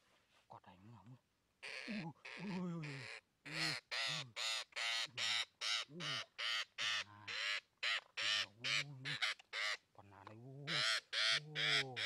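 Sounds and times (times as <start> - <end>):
parrot squawking harshly: 3.0 - 9.8, 10.7 - 12.0.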